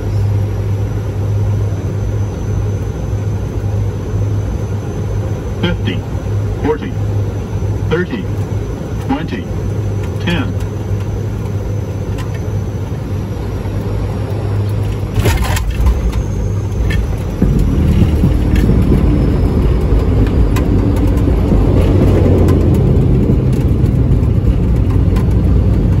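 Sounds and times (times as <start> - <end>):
aircraft rolling on runway: 0.0 - 26.0
turboprop engines droning: 0.0 - 26.0
touchdown bumps and rattles: 14.6 - 26.0.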